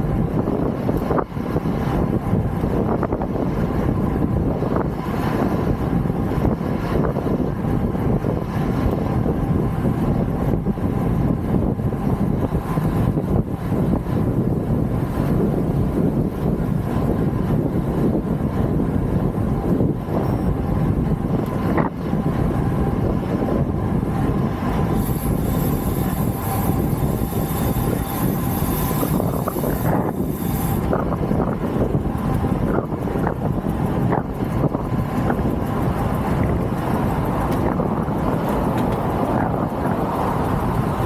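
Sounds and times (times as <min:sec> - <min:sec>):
vehicle road noise: 0:00.0 - 0:41.0
wind on microphone: 0:00.0 - 0:41.0.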